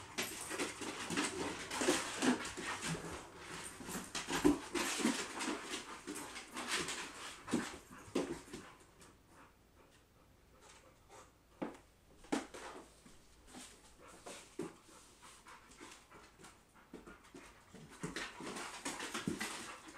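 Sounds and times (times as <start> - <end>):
claws on wooden floor: 0.0 - 8.7.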